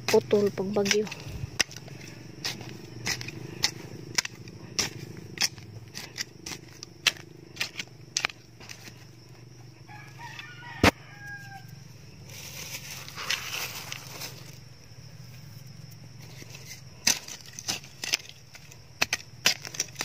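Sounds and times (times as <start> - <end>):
hand tool blade striking dry soil: 0.0 - 9.2, 16.2 - 20.0
rooster crowing: 9.8 - 11.9.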